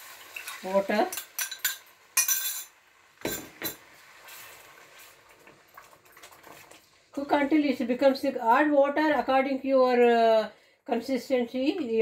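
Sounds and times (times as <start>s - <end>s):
water splashing into pan: 0.0s - 2.3s
glass clinking: 1.2s - 3.8s.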